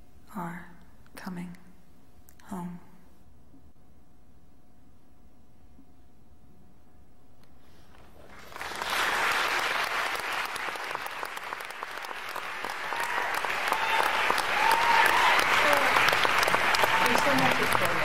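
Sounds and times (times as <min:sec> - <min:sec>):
low steady background: 0:00.0 - 0:08.3
audience applause: 0:08.2 - 0:18.0.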